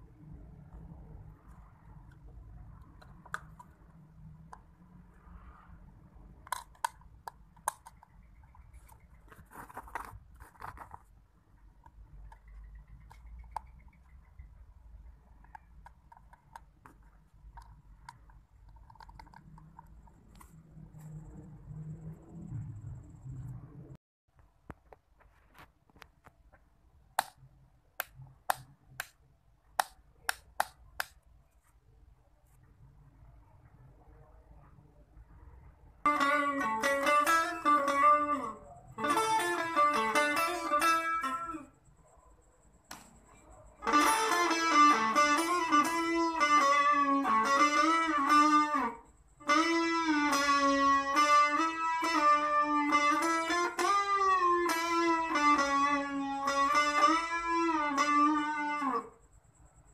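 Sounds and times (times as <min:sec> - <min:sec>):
rustling scrapes: 0:08.8 - 0:11.2, 0:25.1 - 0:25.9.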